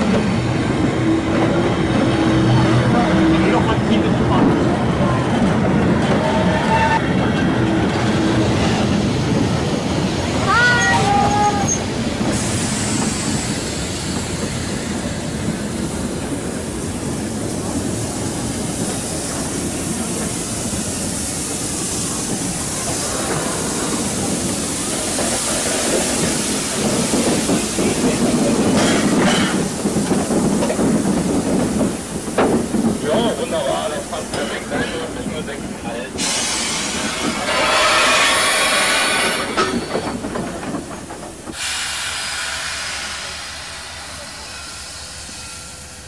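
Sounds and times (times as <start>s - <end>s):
train wheels rumbling: 0.0s - 46.0s
steam hissing: 8.0s - 46.0s
wheels clicking over rail joints: 39.2s - 41.6s.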